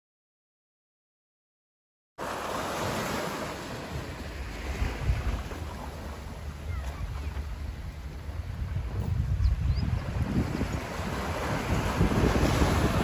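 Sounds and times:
small waves washing on sand: 0:02.2 - 0:09.1, 0:10.0 - 0:13.0
wind buffeting microphone: 0:03.7 - 0:13.0.

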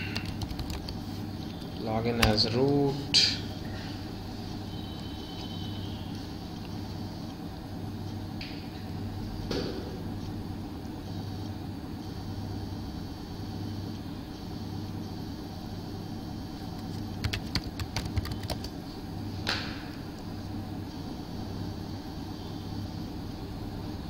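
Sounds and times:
keyboard keys typing: 0:00.0 - 0:02.4, 0:16.7 - 0:18.8
steady low hum: 0:00.0 - 0:24.0.

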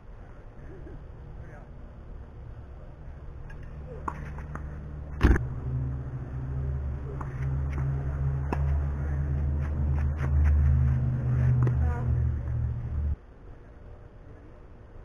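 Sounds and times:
steady low rumble: 0:00.0 - 0:13.3
racket hitting tennis ball: 0:07.1 - 0:12.0.

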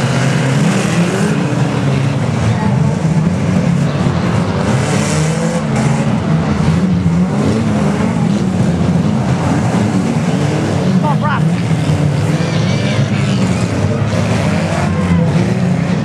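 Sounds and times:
racing car engines revving: 0:00.0 - 0:16.0.

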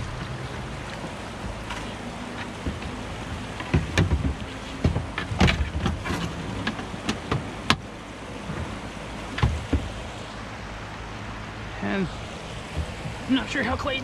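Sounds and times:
kayak gear knocking: 0:00.0 - 0:10.0, 0:12.6 - 0:13.3
river water rushing: 0:00.0 - 0:14.0.

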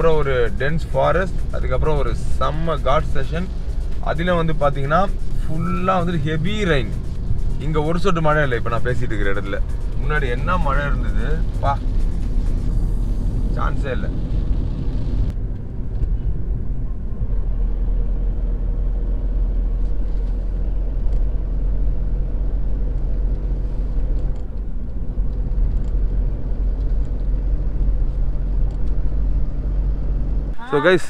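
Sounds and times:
engine and tyre rumble: 0:00.0 - 0:31.0
faint engine hum: 0:00.0 - 0:31.0.

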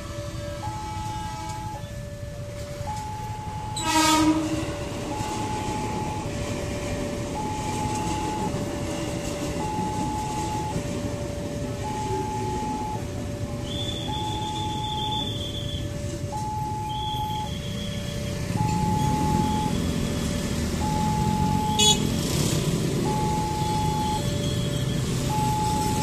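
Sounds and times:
level crossing alarm: 0:00.0 - 0:26.0
train rumbling past: 0:00.0 - 0:26.0
train horn blast: 0:03.8 - 0:04.8.

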